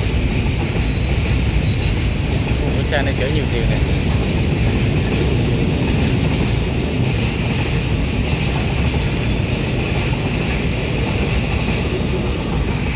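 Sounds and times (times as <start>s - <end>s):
freight train rolling on rails: 0.0s - 12.9s.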